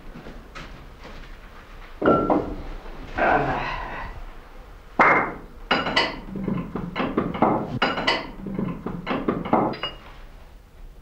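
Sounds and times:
wooden and metal parts knocking: 5.0s - 10.0s.

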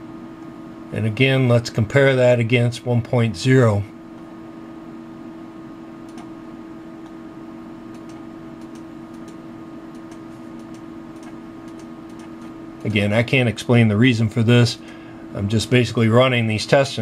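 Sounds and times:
low hum and hiss: 0.0s - 17.0s
computer mouse clicks: 6.1s - 6.3s, 7.9s - 12.9s.

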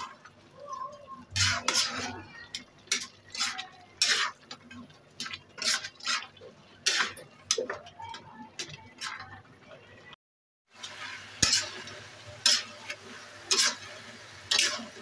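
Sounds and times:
metal spatula scraping a pan: 1.3s - 9.3s, 10.8s - 15.0s.

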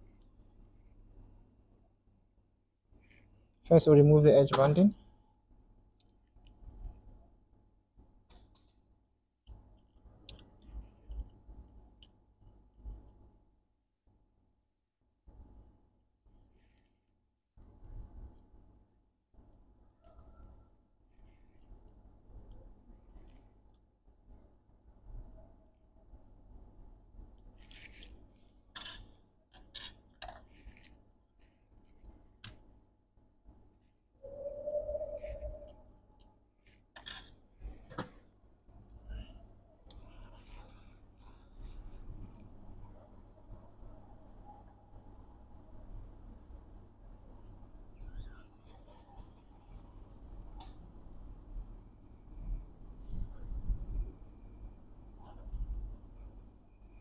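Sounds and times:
metal tweezers clicking and scraping: 10.2s - 11.4s, 27.5s - 28.2s, 28.8s - 32.6s, 36.6s - 37.4s.

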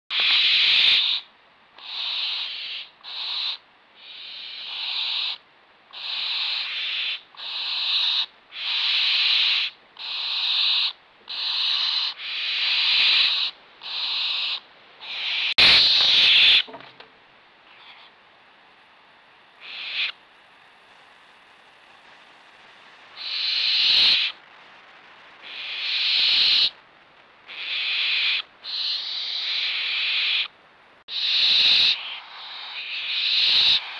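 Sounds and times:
young barn owls hissing snores: 0.1s - 16.7s, 17.6s - 18.2s, 19.1s - 24.4s, 25.4s - 26.8s, 27.5s - 33.9s.

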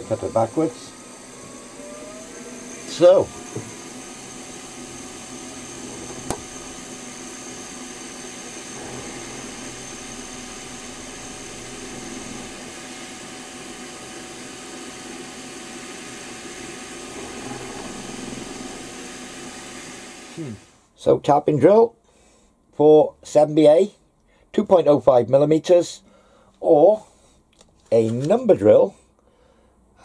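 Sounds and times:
milling machine spindle humming: 0.0s - 20.7s
high drill whine: 0.0s - 20.8s.

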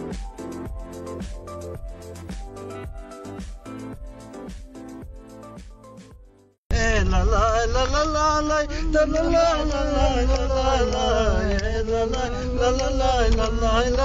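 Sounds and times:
vehicle engine and road rumble: 6.7s - 14.0s.

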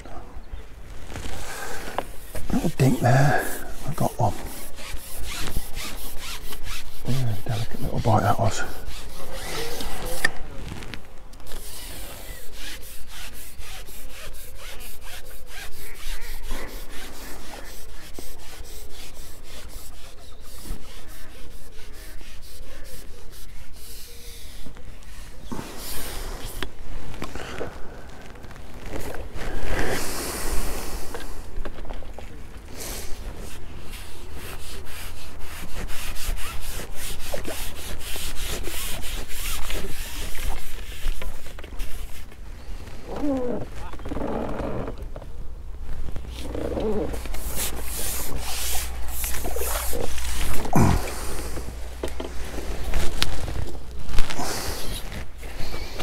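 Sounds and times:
fishing pole sections scraping: 0.9s - 30.0s, 33.1s - 43.5s, 45.9s - 56.0s.

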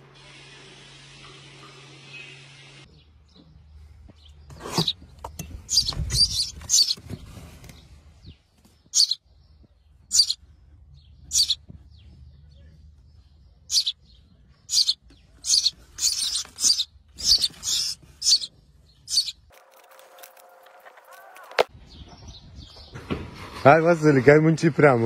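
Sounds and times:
nestling songbirds chirping: 2.8s - 20.3s.

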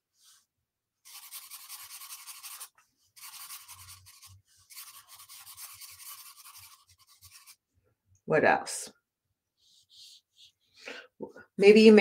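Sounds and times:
marker scratching on paper: 1.0s - 7.6s, 9.6s - 10.7s.

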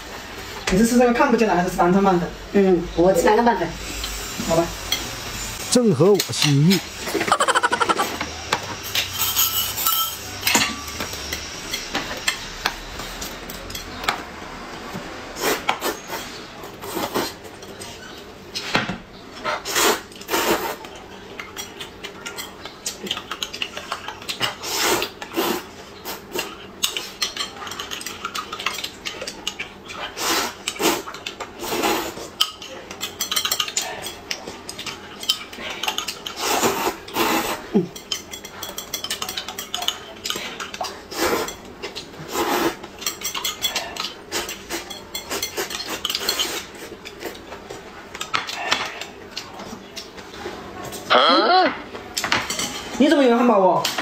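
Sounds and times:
chopsticks tapping plate: 6.3s - 8.3s
spoon clinking against glass: 9.2s - 10.2s
slurping noodles and soup: 19.5s - 20.8s, 24.6s - 27.2s, 30.0s - 32.3s, 36.3s - 37.7s, 41.0s - 41.6s, 42.2s - 42.9s.

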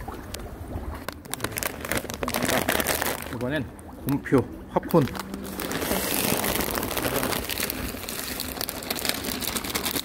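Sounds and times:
plastic bag crinkling: 1.2s - 3.5s, 4.8s - 10.0s.

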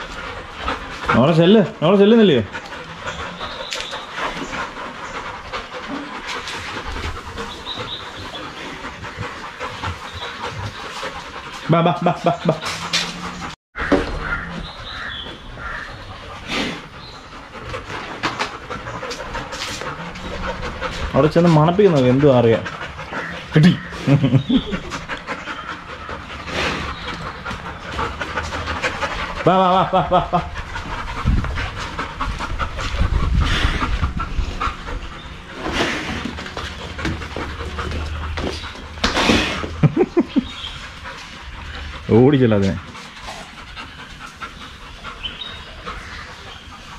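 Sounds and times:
birds chirping: 0.0s - 46.9s
dogs panting heavily: 0.0s - 46.9s.

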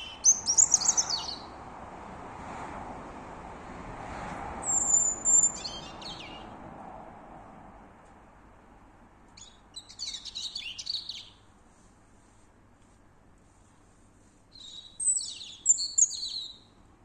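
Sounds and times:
songbird singing: 0.0s - 1.6s, 4.6s - 6.6s, 9.3s - 11.5s, 14.5s - 16.8s.

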